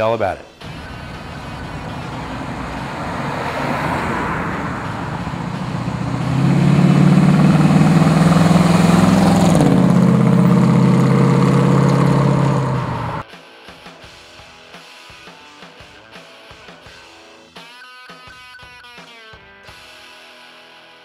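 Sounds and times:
car engine driving past: 0.6 - 13.2.

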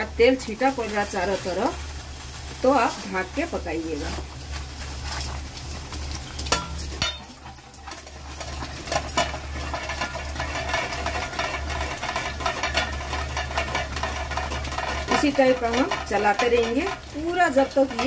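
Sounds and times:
food bubbling and sizzling: 0.0 - 18.0
spoon stirring thick food in metal pot: 4.1 - 18.0.

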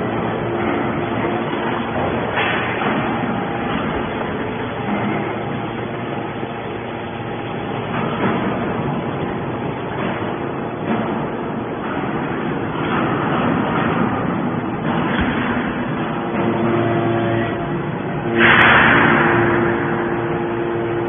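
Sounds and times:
hydraulic machine droning: 0.0 - 21.0.

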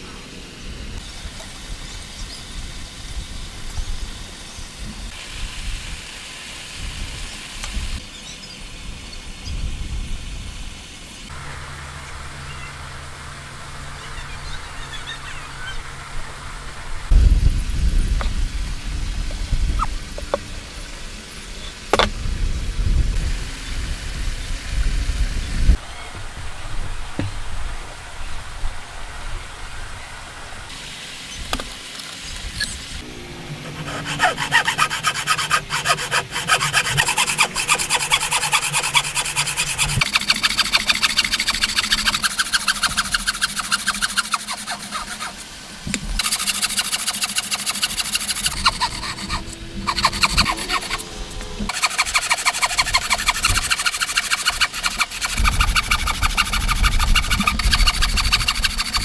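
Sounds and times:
bow saw cutting wood: 33.0 - 45.6, 46.2 - 59.0.

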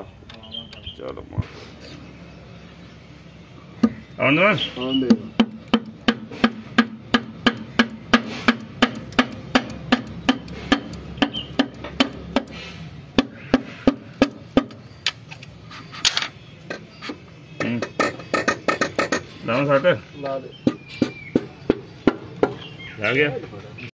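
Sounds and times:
hammer handle knocking on piston: 5.1 - 12.6.

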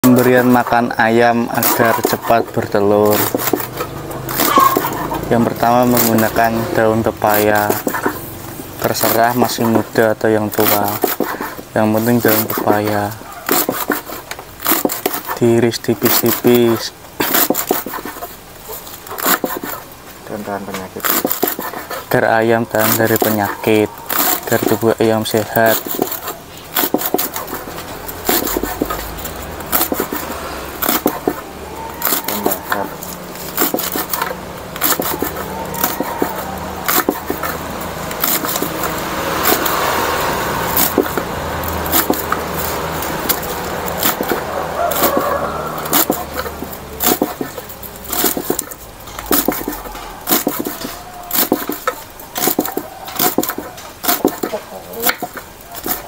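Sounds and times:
knife chopping on wooden block: 3.0 - 6.4, 10.6 - 11.6, 12.2 - 15.4, 17.2 - 18.3, 19.2 - 19.8, 21.0 - 22.0, 25.4 - 31.4, 32.0 - 38.8, 40.7 - 42.5, 43.2 - 56.0.

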